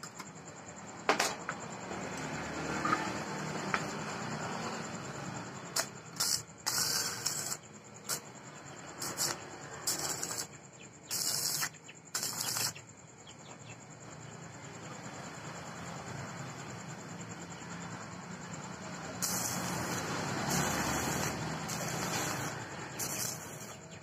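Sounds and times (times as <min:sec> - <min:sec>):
welding arc crackling: 0:05.7 - 0:08.3, 0:08.9 - 0:12.8, 0:19.1 - 0:24.0.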